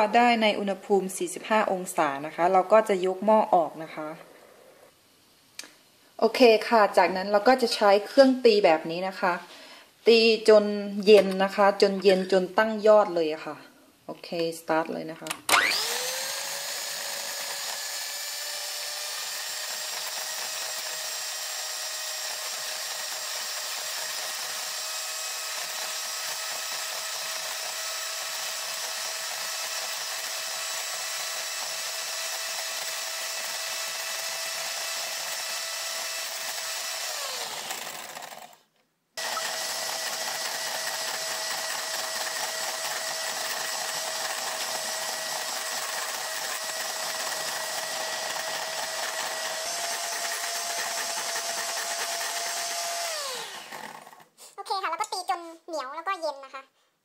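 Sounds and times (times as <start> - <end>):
electric hand mixer whining: 15.5 - 54.3.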